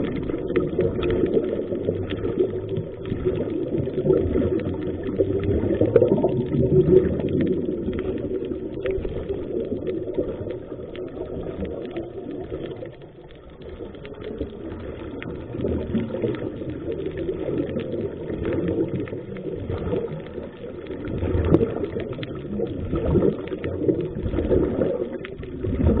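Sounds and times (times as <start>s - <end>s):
crackling bubbles: 0.0s - 26.0s
underwater rumbling wash: 0.0s - 26.0s.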